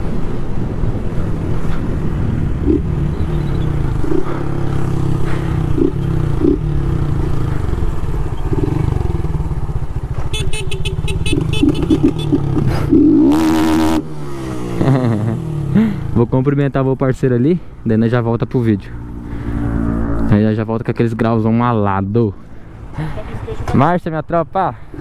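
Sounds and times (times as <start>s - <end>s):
motorcycle engine running: 2.1s - 16.1s.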